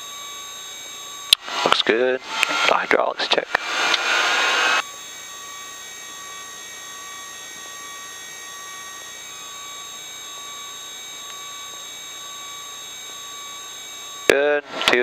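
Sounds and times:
helicopter turbine whine: 0.0s - 15.0s.

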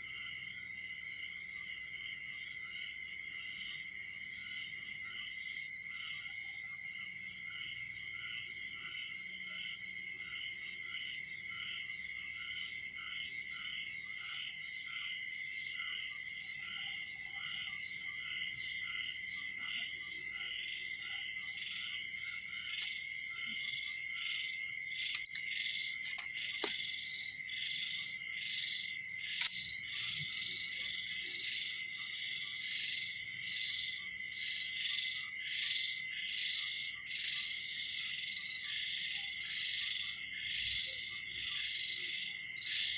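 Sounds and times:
rhythmic pulsing frog call: 1.6s - 42.9s
high trill of insects: 3.0s - 36.0s.

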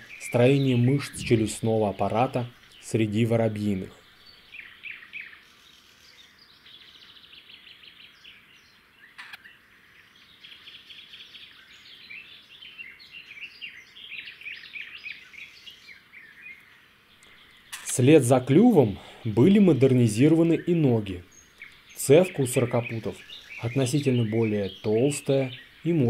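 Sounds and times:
background hiss: 0.0s - 26.0s
small birds chirping: 0.0s - 26.0s
sharp click: 9.2s - 9.4s.

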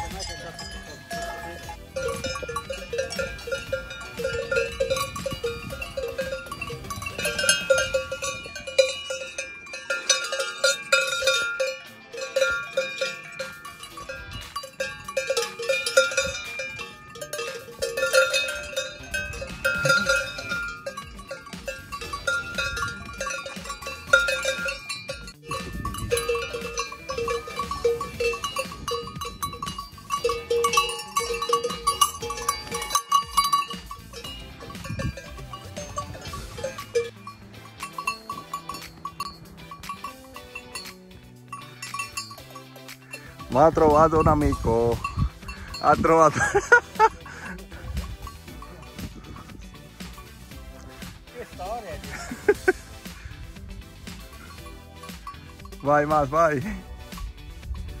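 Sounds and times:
livestock bells clanking: 0.0s - 58.0s.

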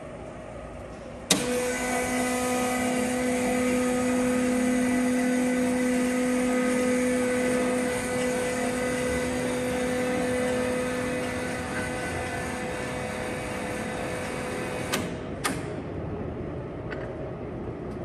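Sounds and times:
lathe running with gear whine: 1.3s - 15.2s.

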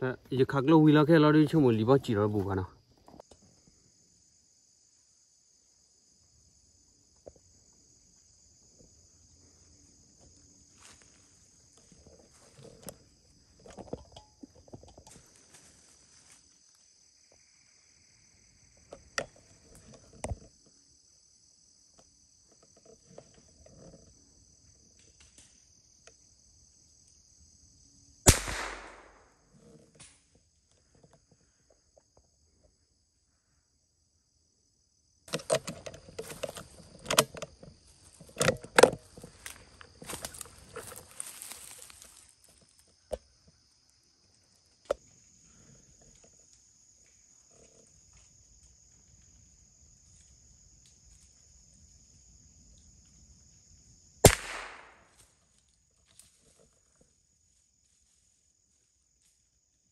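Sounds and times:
insects droning: 0.0s - 59.9s
gunshot with echo: 28.3s - 29.3s, 54.2s - 55.1s
crunching in dry leaves: 39.0s - 42.8s.

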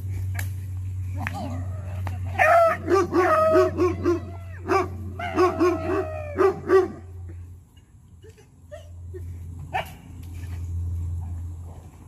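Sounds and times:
dogs barking: 1.3s - 7.2s.

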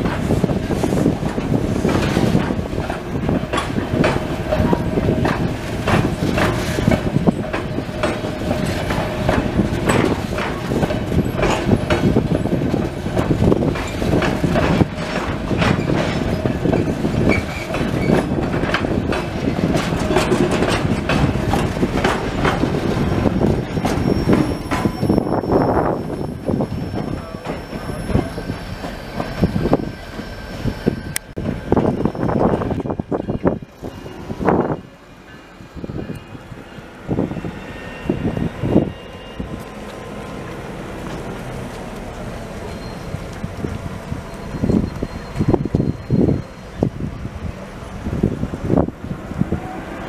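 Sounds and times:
train wheels clicking over rail joints: 0.0s - 34.8s
low train rumble: 0.0s - 50.0s
thin wheel squeal: 23.4s - 31.2s.

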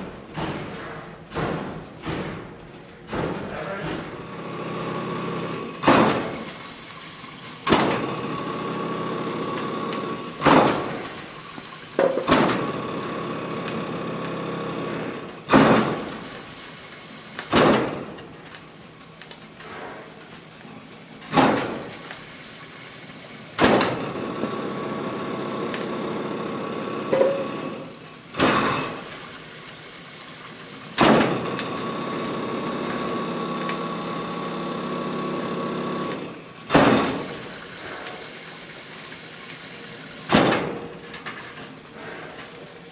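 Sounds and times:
steam air pump strokes: 3.7s - 12.4s, 19.6s - 23.6s, 37.1s - 40.3s, 41.9s - 42.9s.

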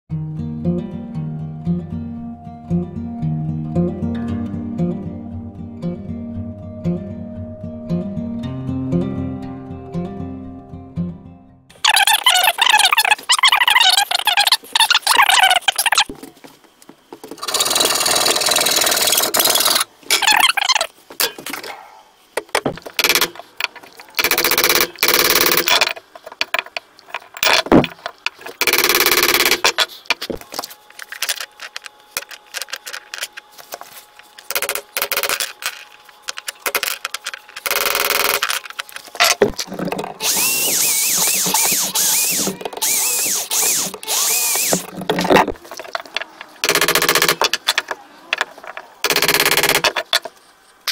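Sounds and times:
workshop sounds: 11.7s - 50.9s
electric drill boring wood: 17.4s - 19.9s, 39.7s - 45.4s.

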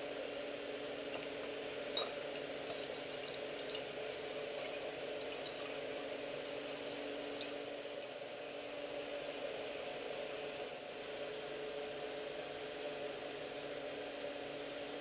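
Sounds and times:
steady background hum: 0.0s - 15.0s
beer trickling into funnel: 0.9s - 8.0s.

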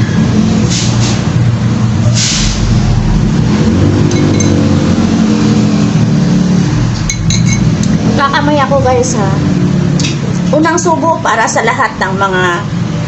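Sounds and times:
loud low hum: 0.0s - 10.6s
metal spoon clinking on glass bowl: 4.1s - 4.7s, 7.1s - 7.7s.

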